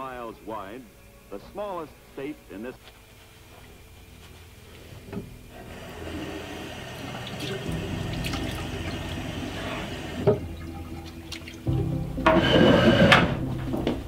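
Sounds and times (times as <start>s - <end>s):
tap water running into sink: 5.6s - 11.7s.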